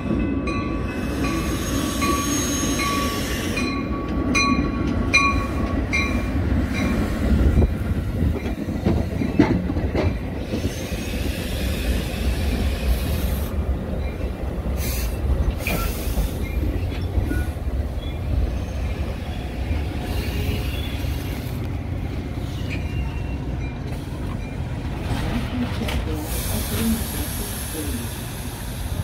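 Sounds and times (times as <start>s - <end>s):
train cars rumbling past: 0.0s - 29.0s
clatter over rail joints: 7.6s - 10.8s, 22.5s - 27.0s
high-pitched wheel squeals: 22.5s - 23.5s.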